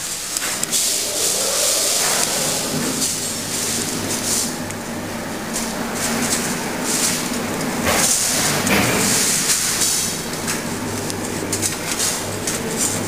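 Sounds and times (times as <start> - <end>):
strong hiss: 0.0 - 10.3
machinery low hum: 0.4 - 7.9.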